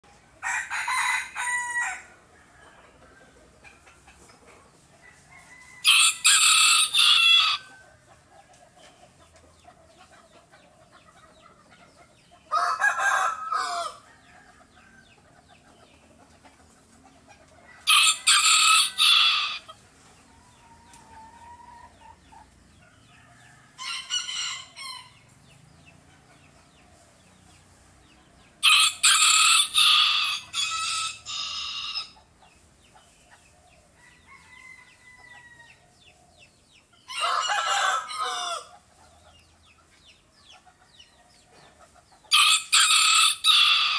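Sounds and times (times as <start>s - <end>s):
rooster crowing: 0.4s - 2.8s, 5.0s - 7.7s, 12.5s - 15.0s, 17.8s - 19.7s, 28.6s - 32.2s, 34.0s - 35.8s, 37.1s - 38.7s, 42.3s - 43.9s.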